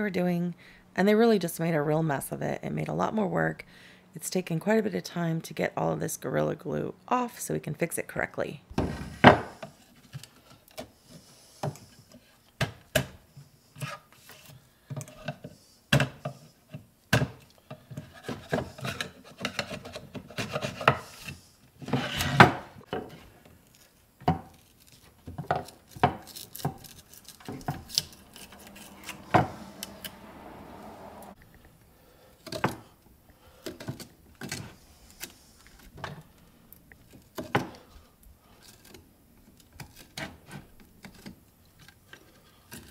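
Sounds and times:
metal tool scraping wood: 0:25.4 - 0:29.5.

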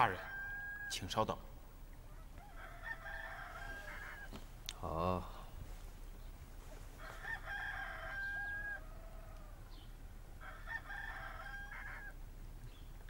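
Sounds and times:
rooster crowing: 0:00.0 - 0:01.2, 0:02.0 - 0:04.4, 0:07.0 - 0:09.8, 0:10.4 - 0:12.2.

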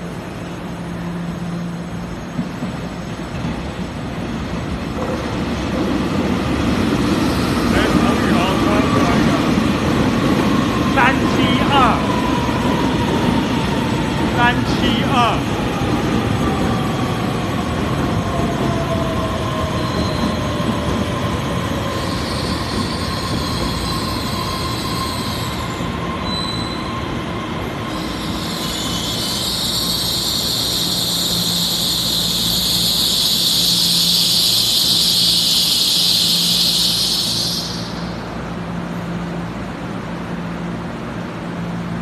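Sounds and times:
brake and wheel squeal: 0:22.0 - 0:27.1, 0:27.8 - 0:38.2.

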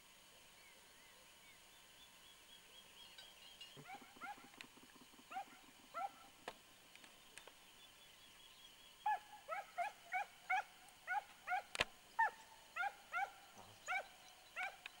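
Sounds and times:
hound baying: 0:03.8 - 0:04.7, 0:05.3 - 0:06.4, 0:09.1 - 0:14.8.

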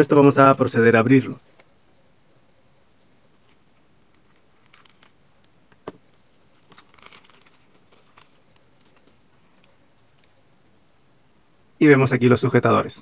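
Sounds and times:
plastic bag crinkling: 0:03.4 - 0:05.2, 0:06.1 - 0:10.3.

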